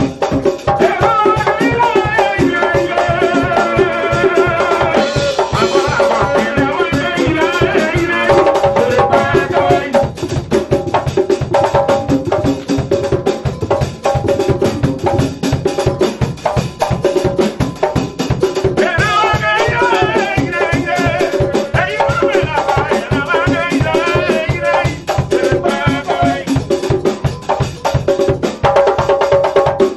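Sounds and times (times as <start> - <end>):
church band playing dance groove: 0.0 - 29.9
men singing: 0.1 - 10.2, 18.6 - 28.0.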